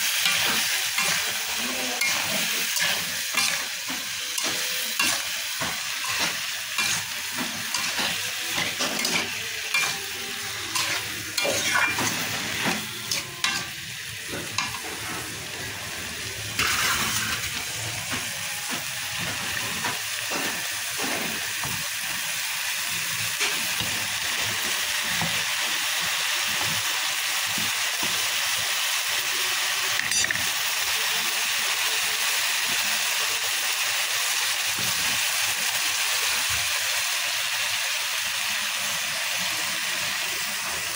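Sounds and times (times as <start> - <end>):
vegetables sizzling in oil: 0.0 - 40.9
metal spatula scraping pan: 0.2 - 13.8.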